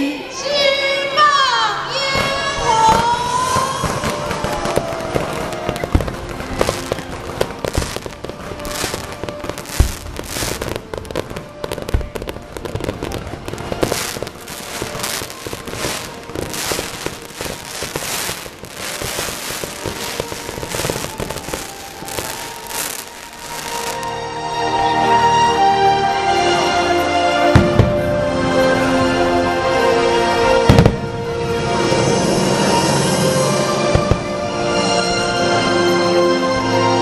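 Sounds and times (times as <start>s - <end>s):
crackling firework bursts: 2.0s - 24.2s, 26.6s - 36.9s
deep firework booms: 2.2s - 24.0s, 30.6s - 35.1s.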